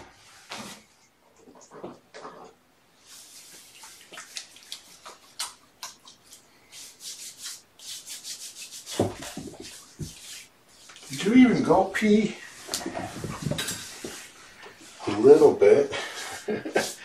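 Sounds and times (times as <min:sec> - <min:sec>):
cat litter scraping: 0:08.9 - 0:15.6.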